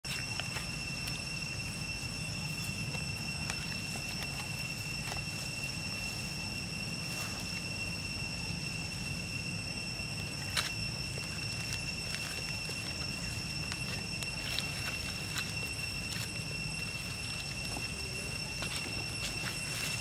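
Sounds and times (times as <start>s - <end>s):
dry leaves rustling: 0.0s - 20.0s
high-pitched whine: 0.0s - 20.0s.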